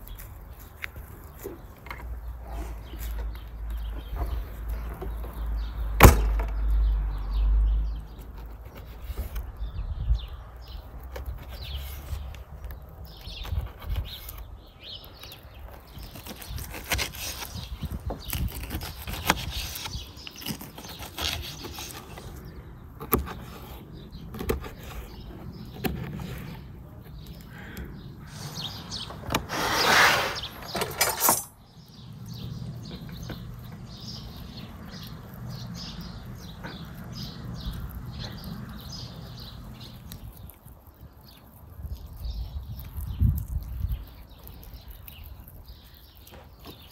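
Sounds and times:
scraping noise: 0:28.2 - 0:31.6.

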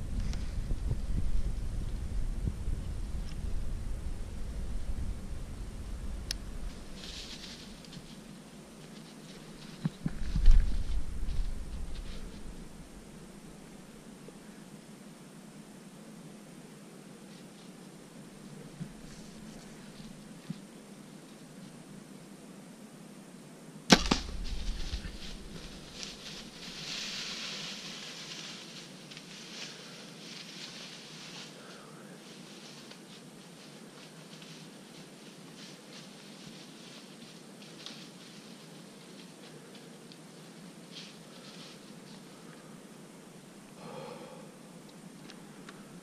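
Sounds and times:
rustling and crackling: 0:00.0 - 0:13.9, 0:17.2 - 0:21.8, 0:23.9 - 0:42.7
steady low hiss: 0:00.0 - 0:46.0
bow shot thump: 0:23.9 - 0:25.7.

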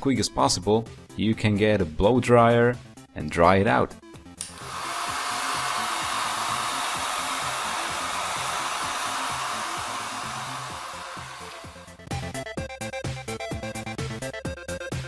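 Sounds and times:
hair dryer blowing air: 0:04.4 - 0:12.0.

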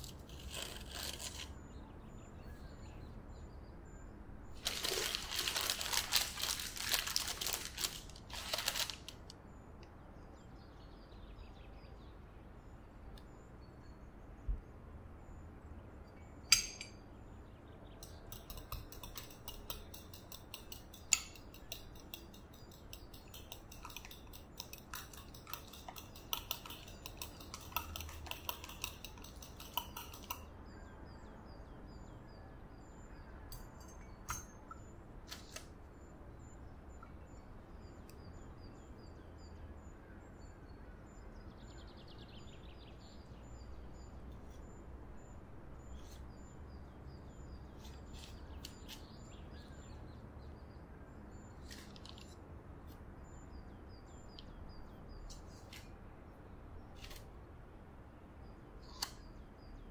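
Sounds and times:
sharp clinks: 0:16.5 - 0:17.1
utensil clicking against glass bowl: 0:18.0 - 0:30.5.

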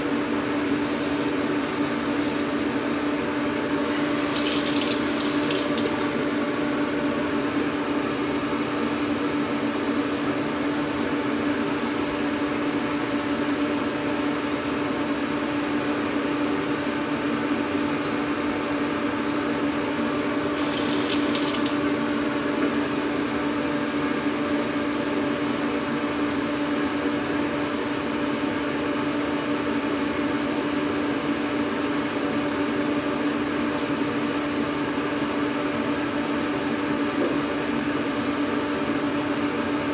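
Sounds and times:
razor scraping stubble: 0:00.7 - 0:02.5, 0:08.7 - 0:11.2, 0:14.2 - 0:14.7, 0:18.0 - 0:19.6, 0:31.4 - 0:37.5.

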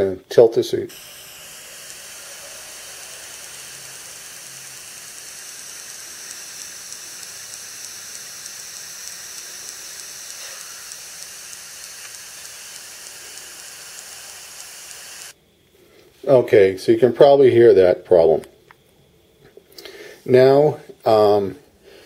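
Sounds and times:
steady hiss: 0:00.0 - 0:18.5, 0:19.1 - 0:22.0
faint interference ticking: 0:00.9 - 0:15.4.

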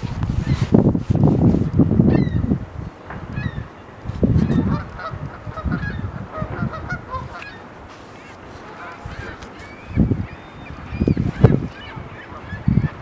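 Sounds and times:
wind buffeting microphone: 0:00.0 - 0:13.0
geese honking: 0:04.4 - 0:13.0.

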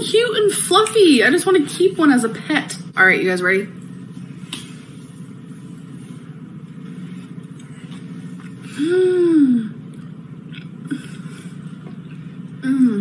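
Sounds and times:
low background hum: 0:00.0 - 0:13.0
woman humming mmm: 0:08.6 - 0:09.8, 0:12.6 - 0:13.0.

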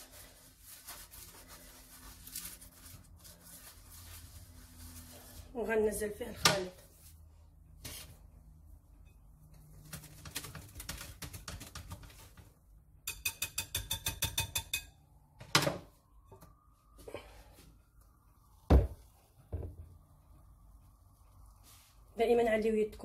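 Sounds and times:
utensil clicks and scrapes in bowl: 0:13.1 - 0:14.9.

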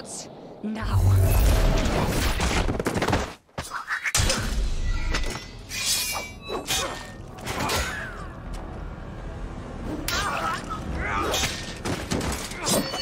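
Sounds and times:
swords clashing: 0:05.7 - 0:08.2.

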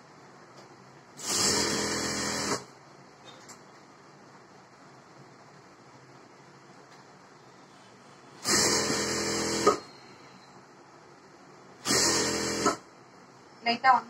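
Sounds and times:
sewing machine stitching: 0:01.2 - 0:02.7, 0:08.4 - 0:09.9, 0:11.8 - 0:12.8.

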